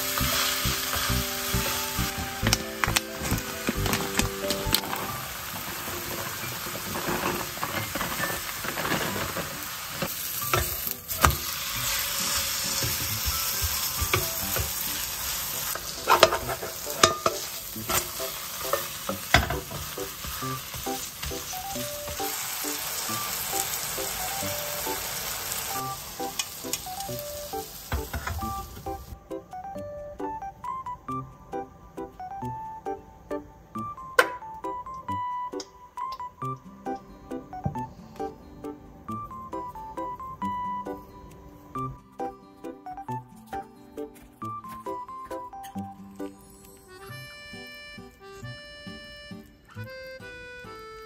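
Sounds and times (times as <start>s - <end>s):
pancake sizzling in oil: 0.0s - 29.2s
wooden spatula knocking on pan: 12.8s - 14.8s.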